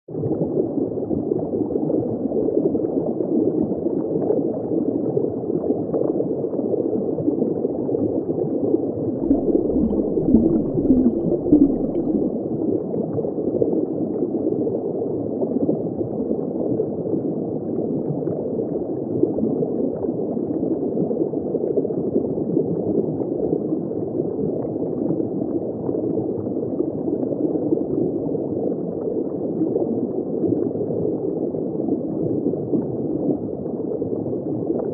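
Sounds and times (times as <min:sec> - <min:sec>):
muffled underwater gurgling: 0:09.2 - 0:12.4.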